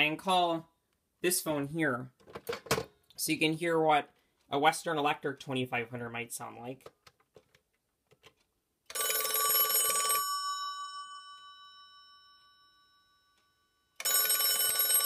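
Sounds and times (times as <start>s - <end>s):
desk telephone bell ringing: 8.9s - 15.0s.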